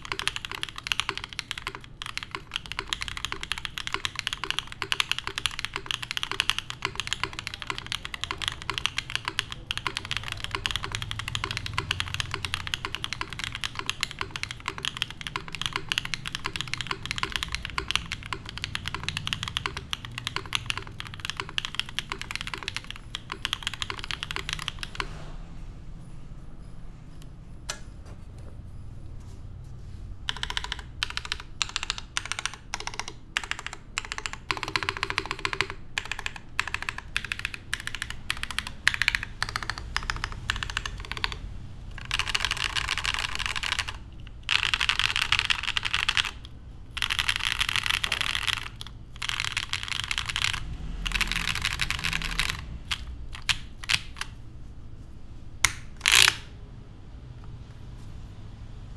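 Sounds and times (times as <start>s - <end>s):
mechanical keyboard typing: 0.0s - 25.3s, 30.2s - 54.4s, 55.6s - 56.5s.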